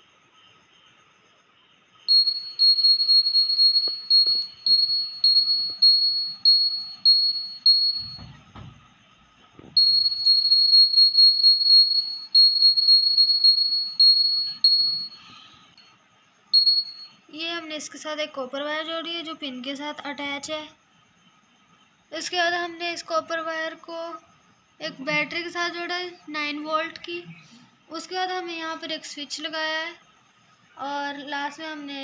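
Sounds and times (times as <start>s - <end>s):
piezo buzzer beeping: 2.1s - 8.7s, 9.7s - 15.5s, 16.6s - 17.2s.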